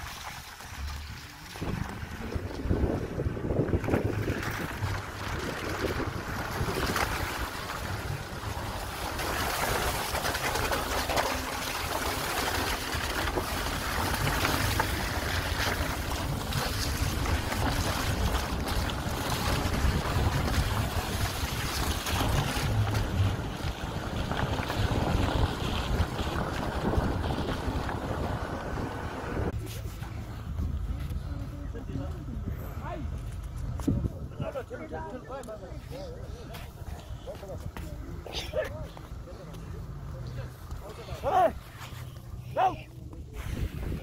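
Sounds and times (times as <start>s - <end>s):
car engine and road rumble: 0.0s - 44.0s
wind buffeting microphone: 1.3s - 10.1s, 13.3s - 32.5s, 33.4s - 35.0s, 43.3s - 44.0s.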